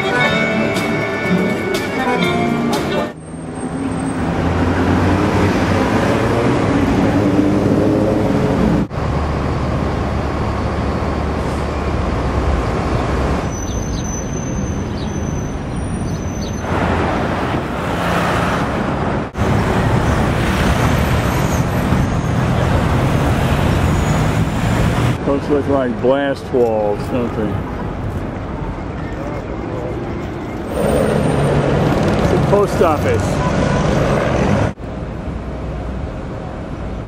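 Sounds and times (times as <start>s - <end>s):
traffic rumble: 0.0s - 37.0s.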